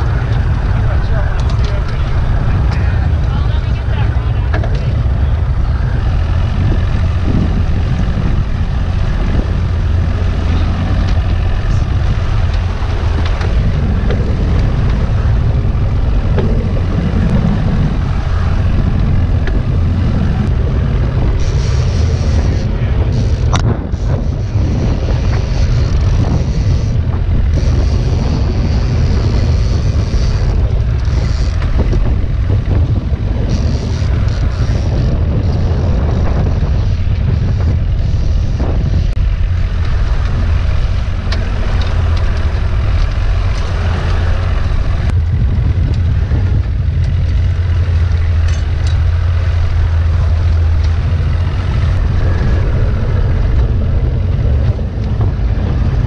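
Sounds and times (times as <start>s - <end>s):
boat motor running low: 0.0s - 56.0s
wind buffeting microphone: 0.0s - 56.0s.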